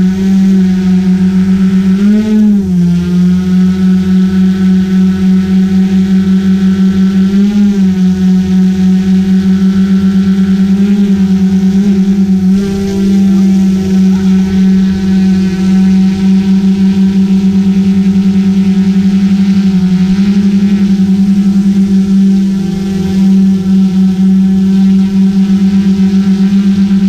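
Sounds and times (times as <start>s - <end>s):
drone propellers buzzing: 0.0s - 27.0s.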